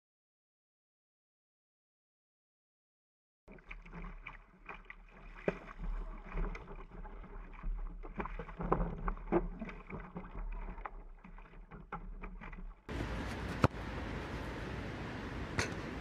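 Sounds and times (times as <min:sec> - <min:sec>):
water slapping against hull: 0:03.5 - 0:12.9.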